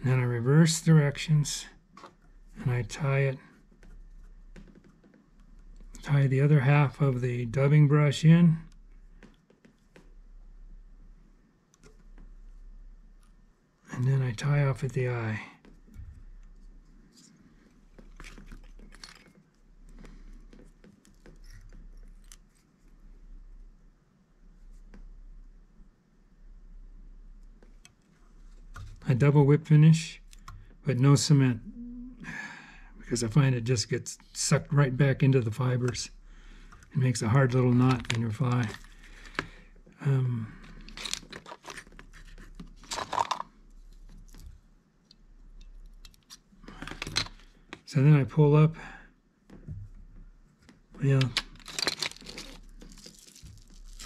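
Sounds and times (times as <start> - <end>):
rustling and scraping handling: 36.6 - 39.6, 40.6 - 47.9, 49.5 - 54.0.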